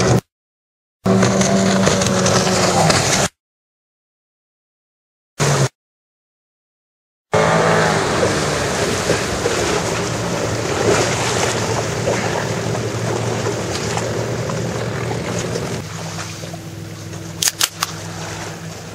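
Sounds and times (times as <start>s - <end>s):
wind: 0.0s - 0.2s, 1.0s - 3.4s, 5.4s - 5.7s, 7.3s - 18.9s
outboard motor running: 1.1s - 3.4s, 7.3s - 18.9s
water rushing: 7.4s - 18.9s
sharp clicks: 17.4s - 17.9s.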